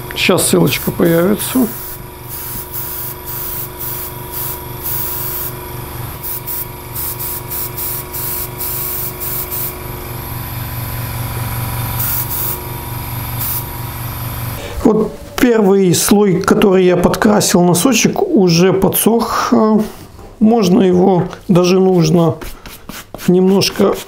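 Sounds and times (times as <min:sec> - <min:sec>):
air compressor humming: 0:00.0 - 0:14.9
airbrush spraying in hissing bursts: 0:00.6 - 0:05.6, 0:06.2 - 0:09.8, 0:12.0 - 0:12.6, 0:13.4 - 0:13.7.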